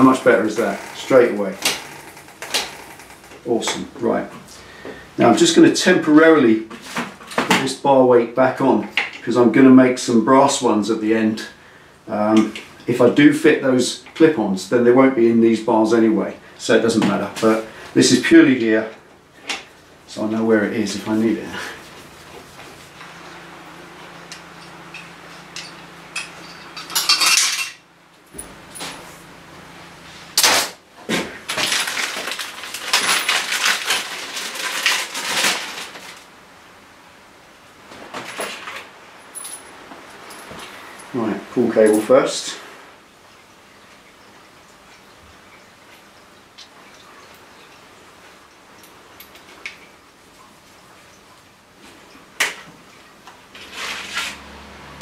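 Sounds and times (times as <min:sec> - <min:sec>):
metal tools clattering: 0:24.2 - 0:29.2, 0:31.5 - 0:35.9, 0:38.2 - 0:41.2
plastic bag crinkling: 0:31.3 - 0:36.3.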